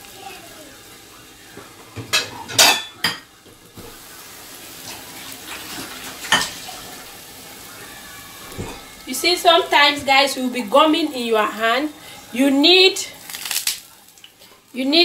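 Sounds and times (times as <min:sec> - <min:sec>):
dough deep-frying in oil: 0:00.0 - 0:15.0
pots and pans clattering: 0:01.5 - 0:04.0, 0:04.8 - 0:07.0, 0:08.4 - 0:09.0.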